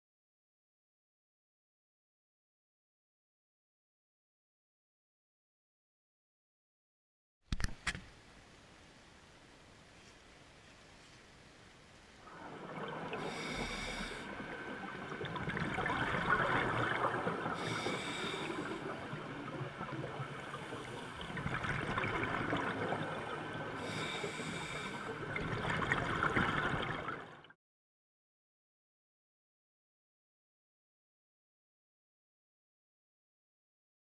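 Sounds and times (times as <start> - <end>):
exhaled bubbles crackling: 12.2 - 27.6
regulator hissing inhalations: 13.2 - 14.3, 17.6 - 19.2, 23.8 - 25.2.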